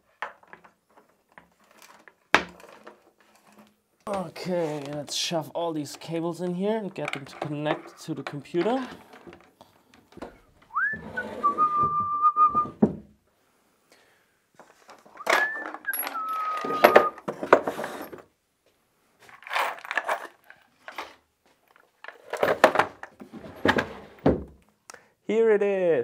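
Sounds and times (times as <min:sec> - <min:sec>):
wooden drawers sliding: 0:07.0 - 0:13.1, 0:14.7 - 0:18.3, 0:22.1 - 0:24.6
person whistling: 0:10.7 - 0:12.8, 0:15.2 - 0:17.2.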